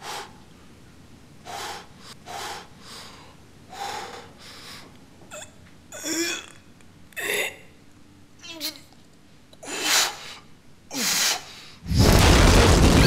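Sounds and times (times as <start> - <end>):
person breathing heavily: 0.0 - 0.4, 1.4 - 4.9.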